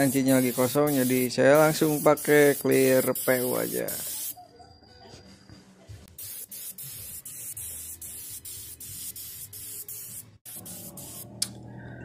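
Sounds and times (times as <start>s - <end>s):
spray hiss: 0.0s - 4.4s, 6.1s - 11.2s.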